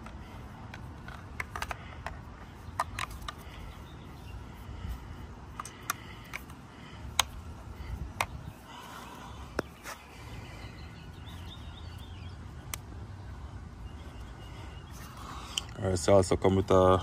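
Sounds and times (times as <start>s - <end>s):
plastic clicks and taps: 0.0s - 3.4s, 5.6s - 7.4s.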